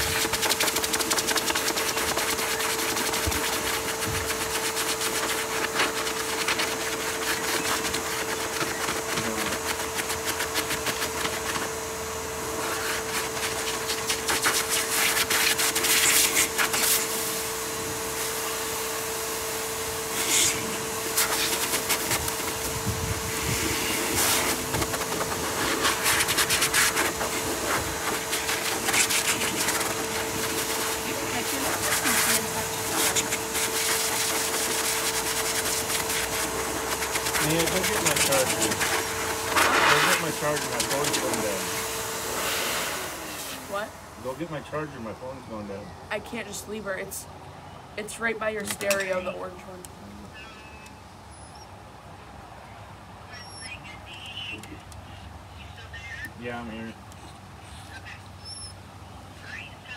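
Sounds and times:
electric grooming clipper motor humming: 0:00.0 - 0:44.0.

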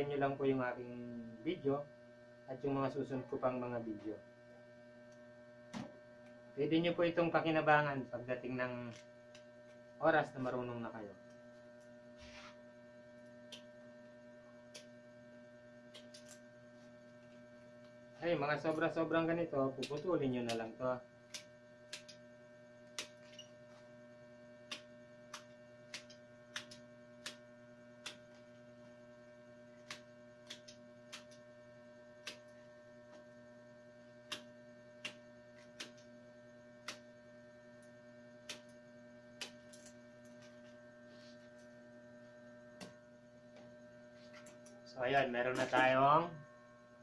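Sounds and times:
steady hum: 0:00.0 - 0:47.0
cutter clicking through wicker: 0:19.7 - 0:20.7, 0:24.6 - 0:27.4.

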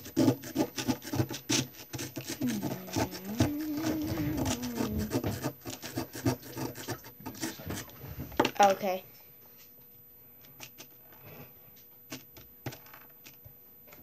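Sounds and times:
low drawn-out tone: 0:02.4 - 0:05.2.

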